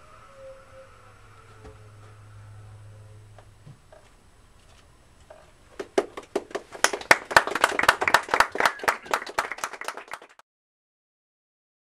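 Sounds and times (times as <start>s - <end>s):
small audience applauding: 5.8s - 10.4s.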